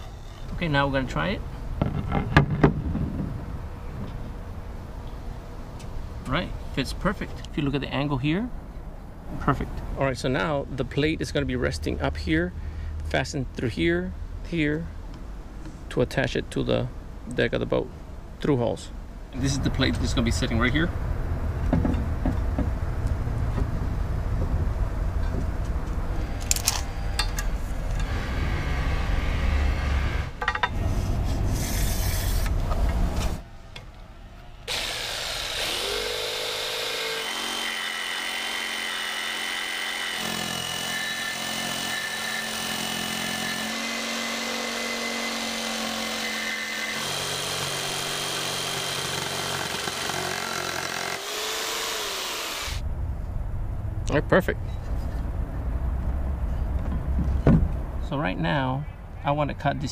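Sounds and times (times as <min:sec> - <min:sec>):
jigsaw cutting metal: 0:34.7 - 0:52.8.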